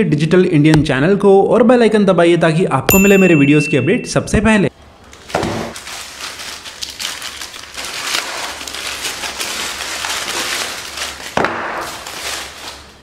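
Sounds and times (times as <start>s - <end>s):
plastic mailer bag crinkling and tearing: 5.7s - 13.0s.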